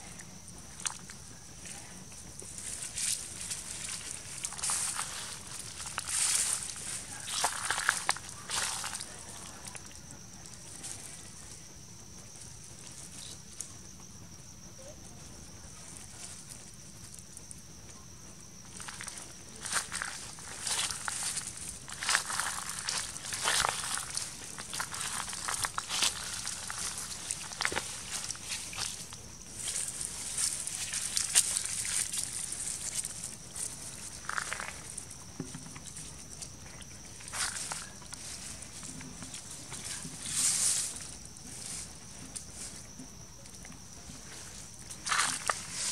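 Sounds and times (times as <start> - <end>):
steady high hiss: 0.0 - 45.9
dry leaves rustling: 1.8 - 11.2, 18.6 - 42.9, 44.0 - 45.9.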